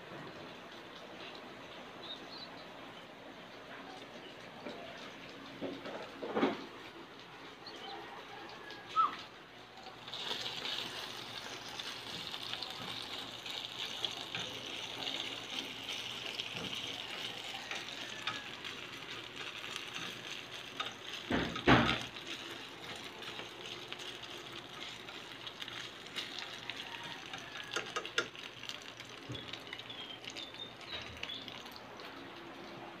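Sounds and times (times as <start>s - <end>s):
meat sizzling in a frying pan: 9.9s - 31.9s.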